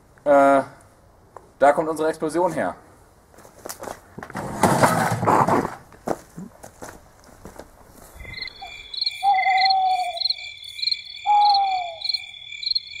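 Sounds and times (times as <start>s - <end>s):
crickets chirring: 8.0s - 13.0s
owl hooting: 8.2s - 13.0s.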